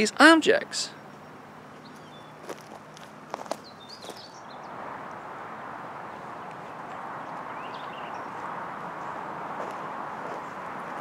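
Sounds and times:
bird chirps: 0:00.9 - 0:04.7, 0:06.6 - 0:08.4
steady rushing noise: 0:04.6 - 0:11.0.

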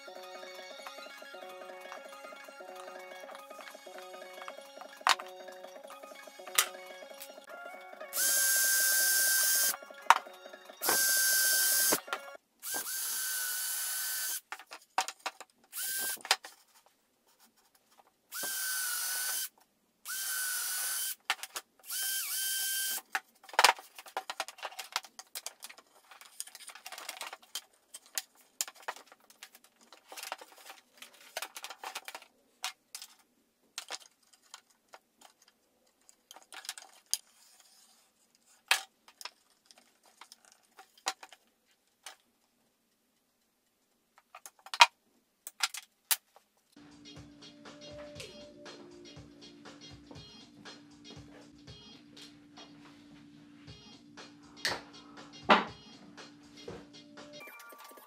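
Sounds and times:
wood and parts clicking and knocking: 0:04.4 - 0:05.3, 0:14.4 - 0:16.8, 0:21.2 - 0:21.7, 0:23.0 - 0:37.8, 0:38.4 - 0:42.3, 0:44.1 - 0:46.6
power drill boring wood: 0:08.2 - 0:09.7, 0:10.8 - 0:12.0, 0:12.6 - 0:14.4, 0:15.8 - 0:16.2, 0:18.3 - 0:19.5, 0:20.1 - 0:21.2, 0:21.9 - 0:23.0.

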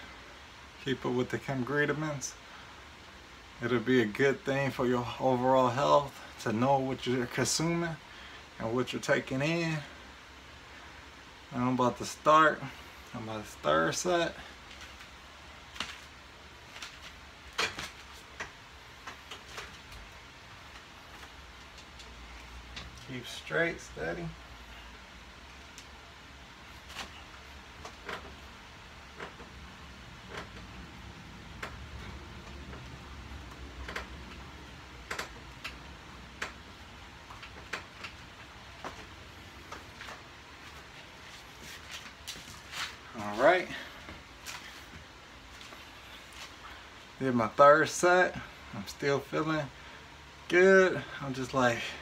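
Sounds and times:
exercise station clicks and knocks: 0:14.7 - 0:23.1, 0:26.9 - 0:40.9.

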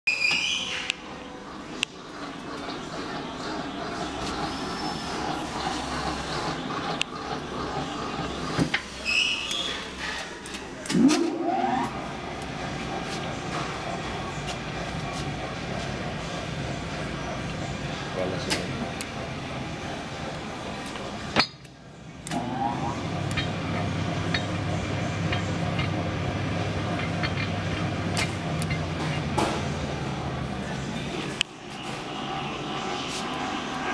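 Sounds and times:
high squeak: 0:00.1 - 0:00.9, 0:08.9 - 0:10.3
mixer motor whirring: 0:01.5 - 0:10.0, 0:22.1 - 0:33.9
motor starting with rising whine: 0:10.9 - 0:12.6, 0:22.2 - 0:28.8.

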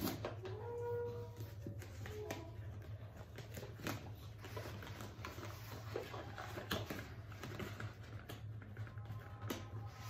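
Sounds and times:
packaging crinkling and rustling: 0:00.0 - 0:10.0.

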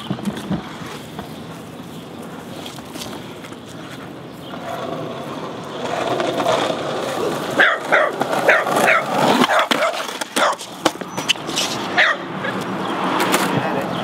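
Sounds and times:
skateboard wheels rolling on pavement: 0:00.0 - 0:14.0
small dog barking: 0:07.6 - 0:10.6, 0:12.0 - 0:12.6.

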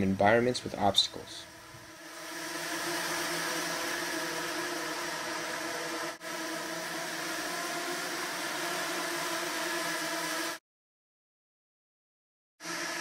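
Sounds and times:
small drones whirring buzz: 0:00.6 - 0:10.6, 0:12.6 - 0:13.0.

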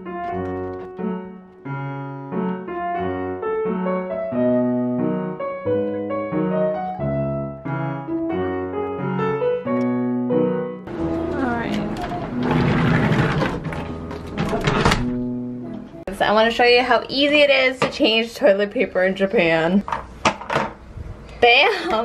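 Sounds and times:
piano music: 0:00.0 - 0:16.5.

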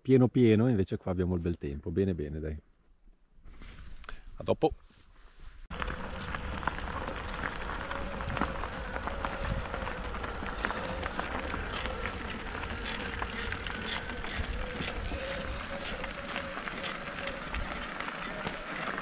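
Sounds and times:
wind buffeting microphone: 0:05.7 - 0:18.7
bike clicks and rattles: 0:05.7 - 0:19.0
tyres rolling over gravel: 0:05.7 - 0:19.0.

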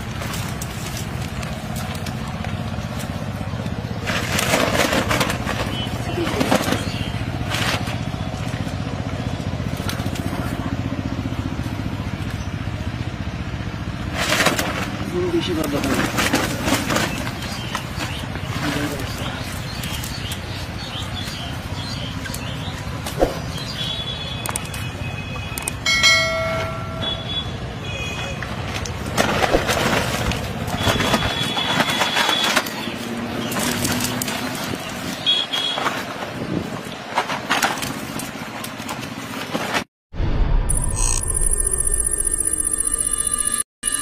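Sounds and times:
fishing net rustling: 0:04.0 - 0:08.5, 0:15.8 - 0:18.7, 0:29.1 - 0:34.8
short high-pitched tone: 0:40.4 - 0:44.0.

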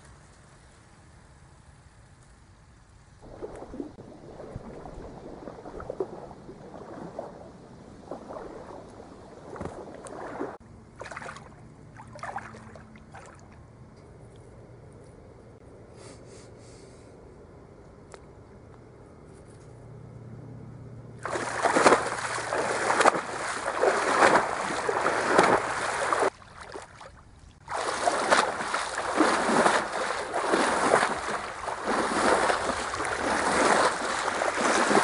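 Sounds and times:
feet splashing in water: 0:03.2 - 0:13.6, 0:21.2 - 0:35.0.

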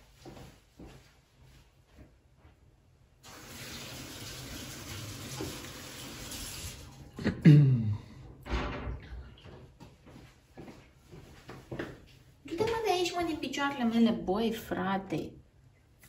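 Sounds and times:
kitchen tap running: 0:03.2 - 0:07.1.

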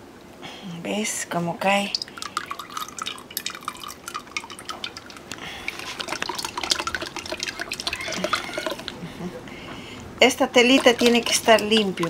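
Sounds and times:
liquid dripping into bucket: 0:01.8 - 0:09.0, 0:10.6 - 0:12.0.

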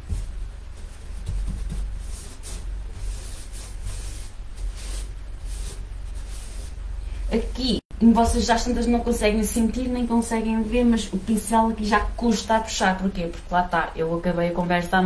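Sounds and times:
paintbrush swishing on wood: 0:00.0 - 0:07.5.

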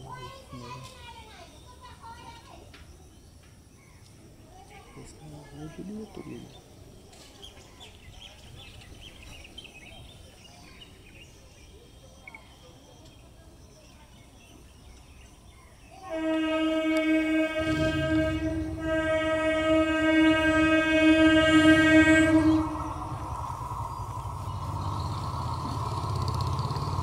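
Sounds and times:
low rumble of train running: 0:14.5 - 0:27.0
train horn blast: 0:16.0 - 0:23.8.

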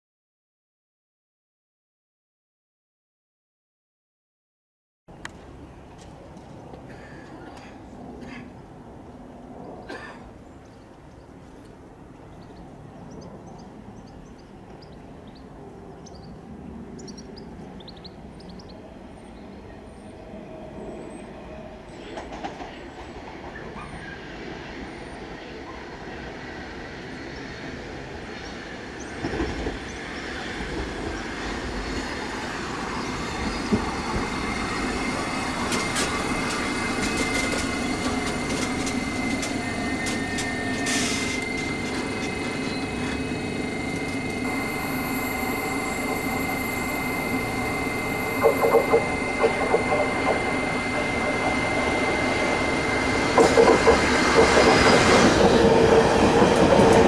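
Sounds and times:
electric train on rails: 0:05.1 - 0:57.0
high whine: 0:29.9 - 0:57.0
wheel clatter over rail joints: 0:35.6 - 0:44.6, 0:47.8 - 0:57.0.

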